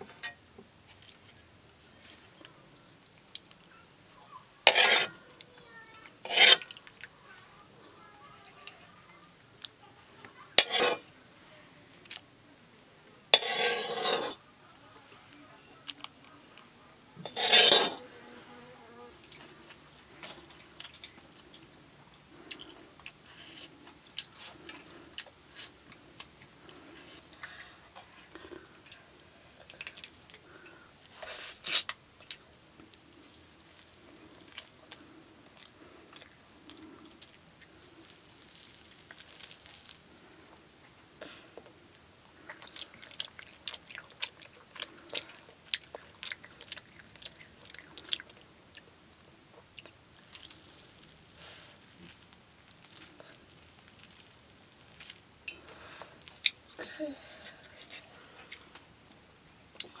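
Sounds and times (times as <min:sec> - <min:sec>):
child chewing: 0:02.4 - 0:07.2, 0:19.2 - 1:00.0.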